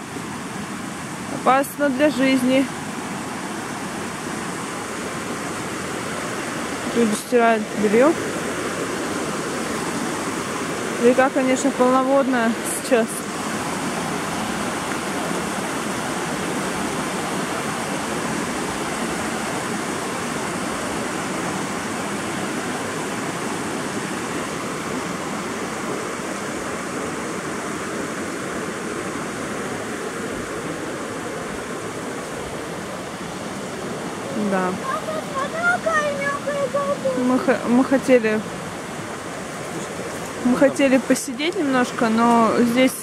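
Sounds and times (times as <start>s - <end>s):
river rushing over rapids: 0.0s - 43.0s.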